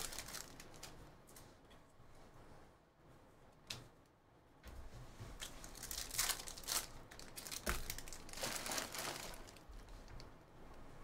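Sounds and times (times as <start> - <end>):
packaging crinkling: 0.0 - 1.0, 5.6 - 9.7.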